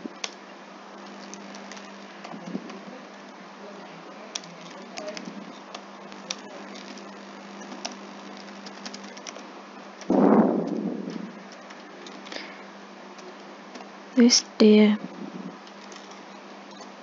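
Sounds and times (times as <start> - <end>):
steady low hum: 0.0 - 17.0
keyboard keys clicking: 7.8 - 9.4.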